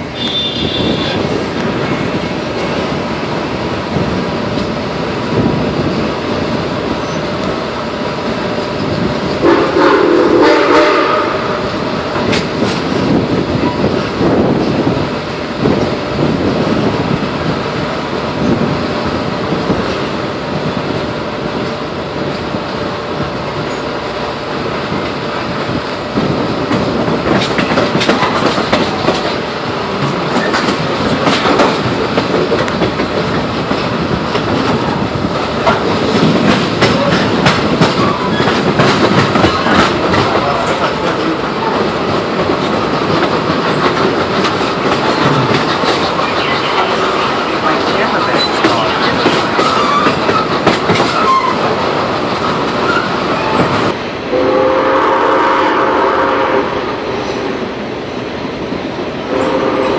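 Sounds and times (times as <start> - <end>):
train wheels rumbling on rails: 0.0 - 59.9
wheels clattering over rail joints: 25.6 - 54.0.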